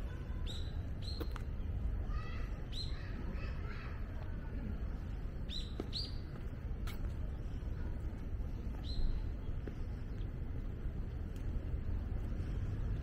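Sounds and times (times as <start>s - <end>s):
distant city rumble: 0.0s - 13.0s.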